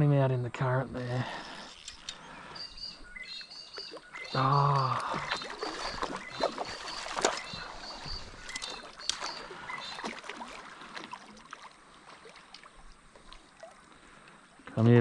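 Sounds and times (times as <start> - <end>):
fish splashing in water: 3.8 - 13.9.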